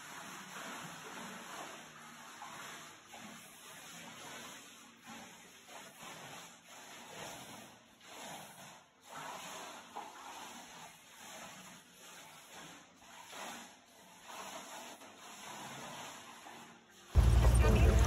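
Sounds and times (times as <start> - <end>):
pool water swishing and lapping: 0.0 - 18.0.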